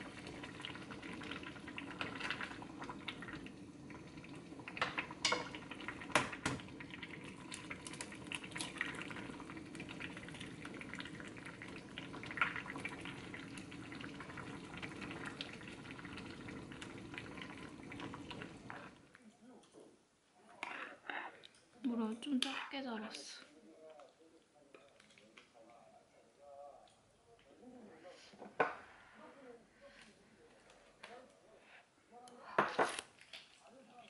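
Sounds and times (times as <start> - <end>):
stew bubbling in a pot: 0.0 - 19.2.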